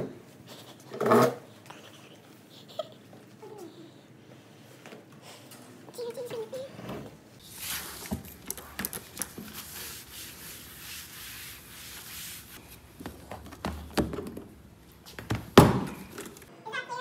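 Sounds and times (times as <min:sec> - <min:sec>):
paper towel rubbing on desk: 0:07.4 - 0:08.4, 0:09.0 - 0:12.6.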